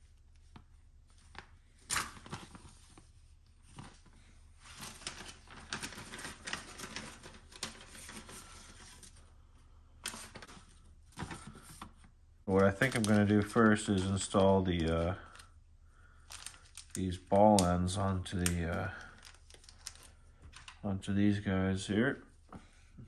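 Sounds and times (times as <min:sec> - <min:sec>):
plastic bags crinkling: 0:03.6 - 0:09.2, 0:10.0 - 0:15.6, 0:16.2 - 0:20.8.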